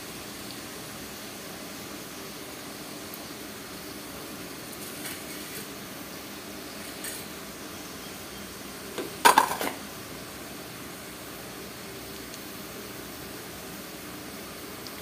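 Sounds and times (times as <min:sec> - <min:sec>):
seeds sizzling in hot oil: 0:00.0 - 0:15.0
metal utensils clattering: 0:09.0 - 0:09.8.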